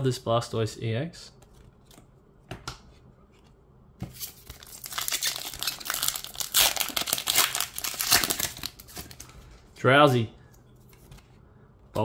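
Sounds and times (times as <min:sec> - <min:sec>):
foil wrapper crinkling and tearing: 0:04.3 - 0:09.3.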